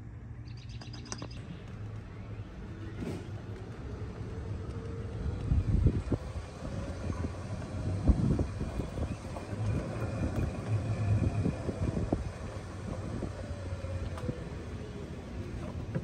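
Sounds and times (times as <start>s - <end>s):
golf cart low rumble: 0.0s - 16.0s
wind on microphone: 5.2s - 16.0s.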